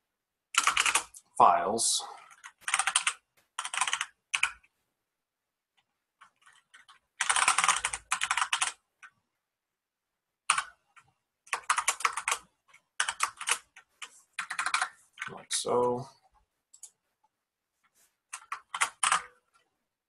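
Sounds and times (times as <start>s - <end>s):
computer keyboard typing: 0.6s - 1.2s, 2.2s - 4.7s, 6.2s - 9.2s, 10.5s - 15.8s, 16.7s - 17.0s, 18.3s - 19.6s.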